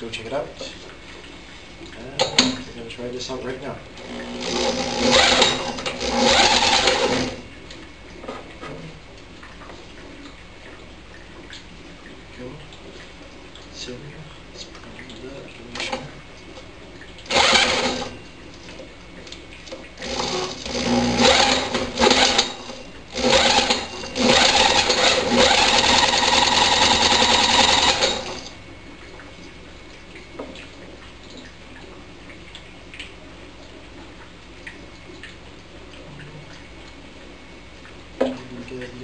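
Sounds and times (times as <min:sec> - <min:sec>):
drill whirring: 0:04.0 - 0:07.4, 0:17.3 - 0:18.2, 0:20.0 - 0:28.5.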